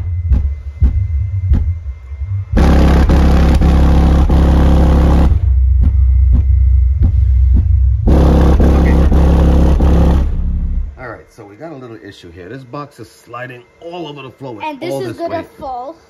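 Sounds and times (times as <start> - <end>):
loud deep bass: 0.0 - 11.1
distorted buzzing and rattling: 0.0 - 11.3.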